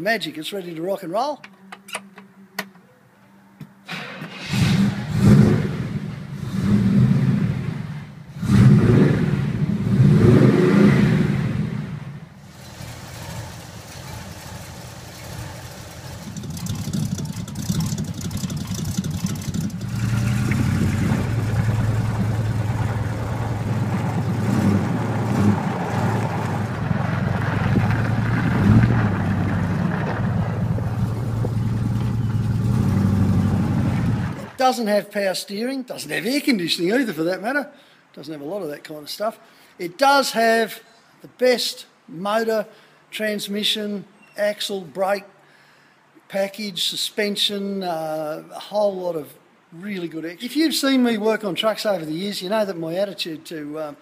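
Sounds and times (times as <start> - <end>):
engine starting and revving: 3.9 - 34.5.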